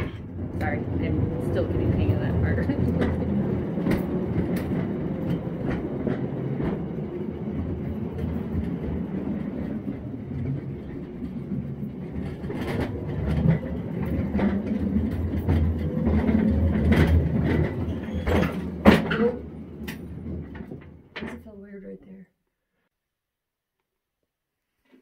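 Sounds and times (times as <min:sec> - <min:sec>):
locomotive wheels rumbling on track: 0:00.0 - 0:21.8
clicks over rail joints: 0:01.9 - 0:21.5.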